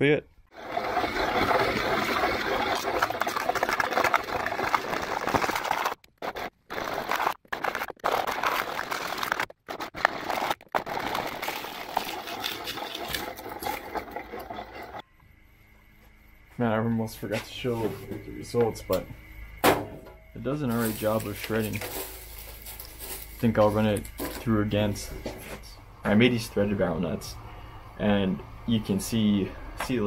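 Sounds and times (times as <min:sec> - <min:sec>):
plastic shredder crunching plastic: 0:00.6 - 0:15.0, 0:20.7 - 0:24.5.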